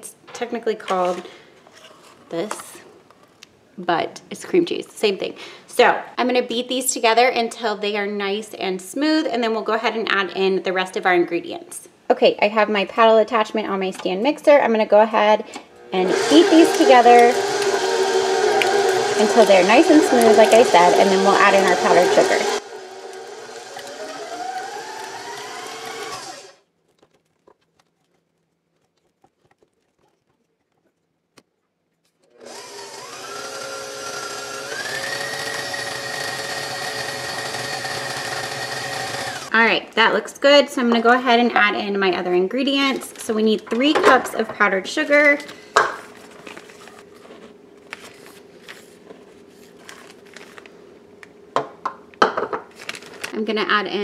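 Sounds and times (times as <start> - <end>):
stand mixer motor whine: 15.8 - 26.6, 32.3 - 39.5
plastic bag crinkling: 16.6 - 32.2, 45.2 - 51.3, 52.7 - 54.0.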